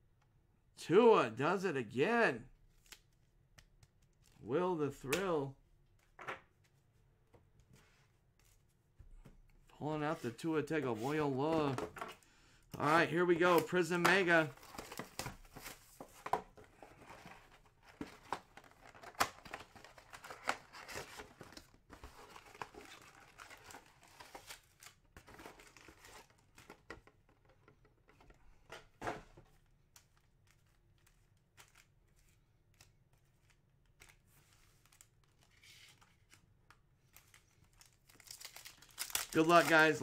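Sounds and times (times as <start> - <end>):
cards being shuffled: 37.1 - 40.0
foil wrappers crinkling and tearing: 37.1 - 40.0.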